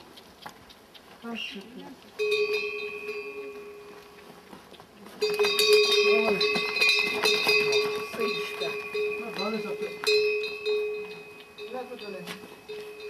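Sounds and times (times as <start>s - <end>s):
bell clapper rattling: 2.2s - 3.8s, 5.2s - 13.0s
bell ringing: 2.2s - 4.0s, 5.2s - 13.0s.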